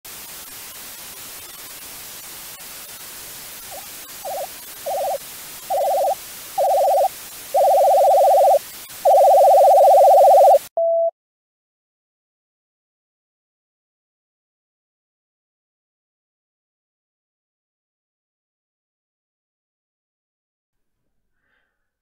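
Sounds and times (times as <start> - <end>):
tv static hiss: 0.1 - 10.7
warbling electronic beeps: 3.7 - 10.7.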